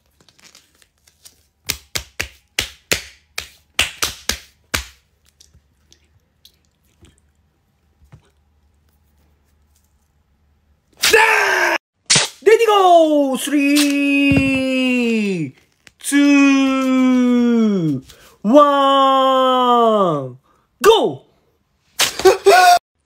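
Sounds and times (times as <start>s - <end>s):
hands patting tape on skin: 0.2s - 5.6s.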